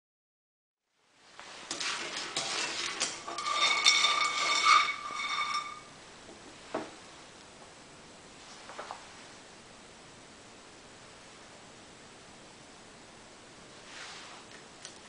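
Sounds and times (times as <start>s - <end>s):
seeds clattering in a frying pan: 1.3s - 5.9s
faint hiss: 6.0s - 14.8s.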